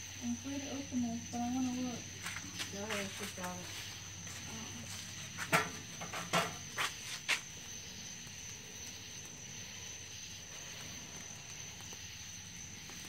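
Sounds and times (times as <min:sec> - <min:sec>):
night insects chirring: 0:00.0 - 0:13.0.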